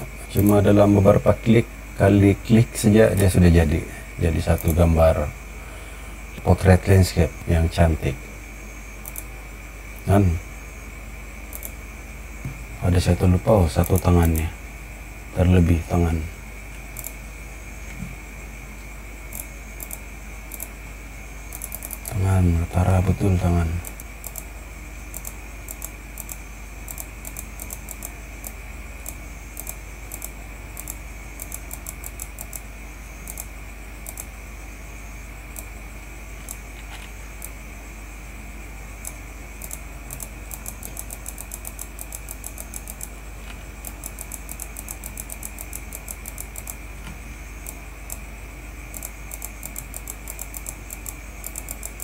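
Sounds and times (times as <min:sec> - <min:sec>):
faint high whine: 0:00.0 - 0:52.0
steady electrical hum: 0:00.0 - 0:52.0
computer mouse clicking: 0:04.6 - 0:04.8, 0:09.0 - 0:09.3, 0:11.5 - 0:11.8, 0:13.8 - 0:14.4, 0:17.0 - 0:17.2, 0:19.3 - 0:20.7, 0:21.5 - 0:22.2, 0:23.8 - 0:24.5, 0:25.1 - 0:32.6, 0:33.2 - 0:34.3, 0:36.4 - 0:37.6, 0:39.0 - 0:48.2, 0:48.9 - 0:52.0.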